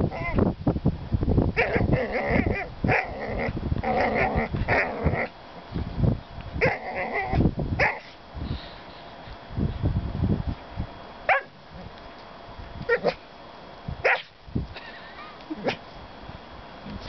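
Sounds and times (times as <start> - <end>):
dog growling and yipping: 0.0 - 0.4, 1.6 - 5.4, 6.6 - 8.2, 12.9 - 13.2, 15.5 - 15.8.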